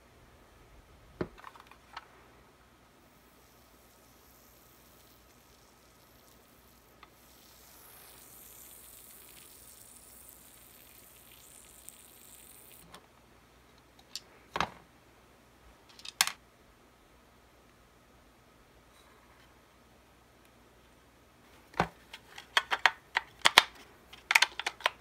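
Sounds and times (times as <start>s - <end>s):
plastic parts clicking and knocking: 1.2s - 2.1s, 15.9s - 16.4s, 21.7s - 25.0s
faint fizzing hiss of liquid: 3.0s - 13.0s.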